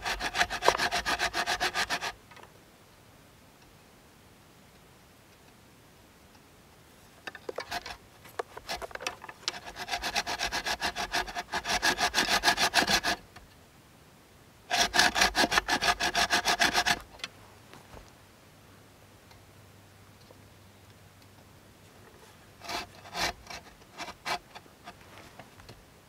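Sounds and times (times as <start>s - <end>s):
saw cutting through log: 0.0s - 2.2s, 9.5s - 13.2s, 14.7s - 17.1s, 22.6s - 24.5s.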